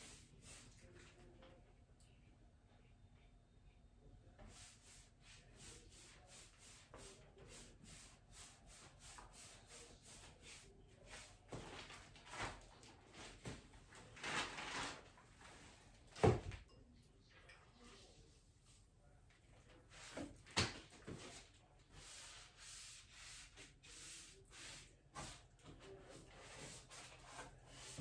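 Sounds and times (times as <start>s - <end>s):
paint brush strokes on wood: 0.0s - 1.3s, 4.4s - 12.5s, 17.8s - 19.2s, 21.0s - 28.0s
brush scraping: 4.4s - 13.6s, 21.0s - 28.0s.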